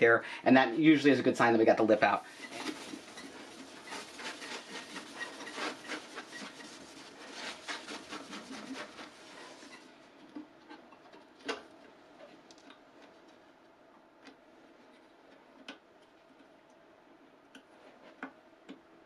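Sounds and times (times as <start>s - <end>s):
towel rubbing on metal plate: 2.3s - 9.9s.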